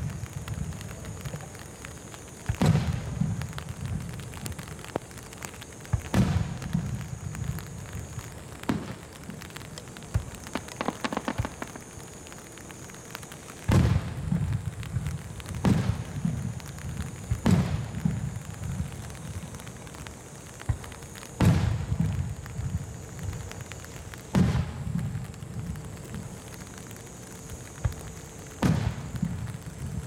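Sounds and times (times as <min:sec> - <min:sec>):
firework crackles: 0:00.0 - 0:30.0
rain pattering on umbrella: 0:00.0 - 0:30.0
firework booms: 0:02.4 - 0:05.0, 0:05.8 - 0:12.5, 0:13.6 - 0:19.5, 0:20.6 - 0:26.5, 0:27.7 - 0:30.0.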